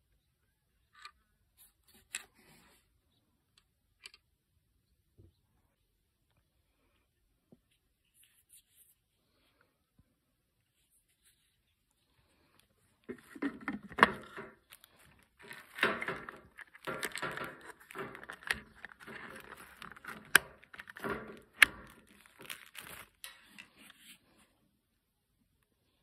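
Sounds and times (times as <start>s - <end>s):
plastic parts rustling and scraping: 1.0s - 3.0s, 10.6s - 24.6s.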